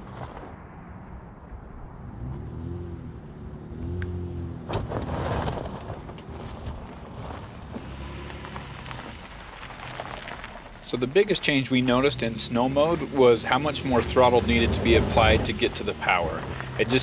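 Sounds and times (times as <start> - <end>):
sharp crack: 0.0 - 3.1, 3.9 - 17.0
truck engine pulling under load: 4.0 - 17.0.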